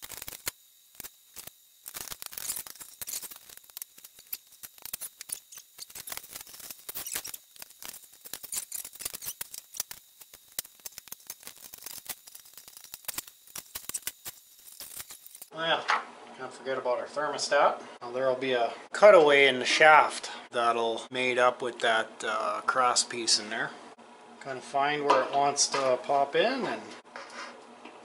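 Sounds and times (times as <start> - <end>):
metal parts clicking and scraping: 0.0 - 15.5.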